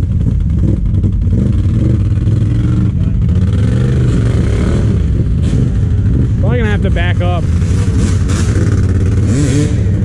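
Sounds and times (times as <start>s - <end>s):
quad engine revving unevenly: 0.0s - 10.0s.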